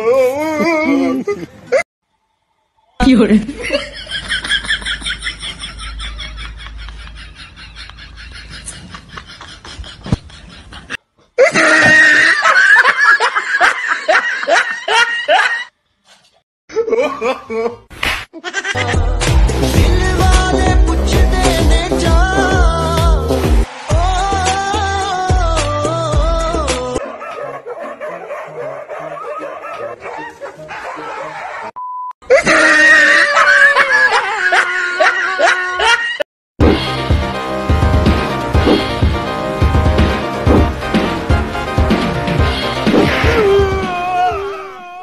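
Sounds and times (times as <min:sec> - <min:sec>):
person laughing loudly: 0:00.4 - 0:01.8, 0:03.5 - 0:15.7, 0:16.7 - 0:20.6, 0:32.3 - 0:36.2
dogs barking and yipping: 0:27.0 - 0:31.8.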